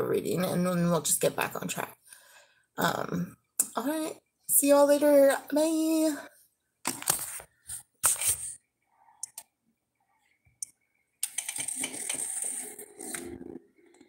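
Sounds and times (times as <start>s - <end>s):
rubbing and rustling: 6.9s - 8.6s.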